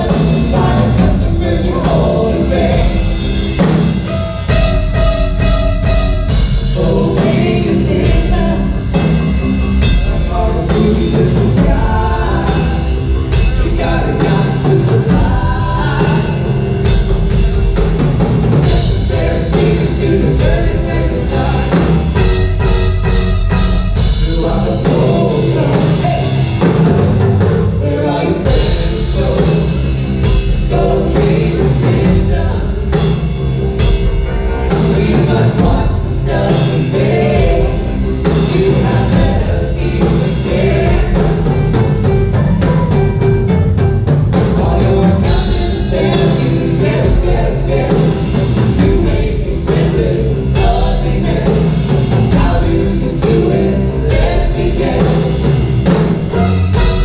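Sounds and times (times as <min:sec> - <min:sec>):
person singing: 0:00.0 - 0:03.8, 0:06.5 - 0:16.9, 0:24.1 - 0:27.0, 0:27.8 - 0:33.4, 0:34.1 - 0:42.7, 0:44.3 - 0:55.6
drum kit: 0:00.0 - 0:57.0
live band playing loudly: 0:00.0 - 0:57.0.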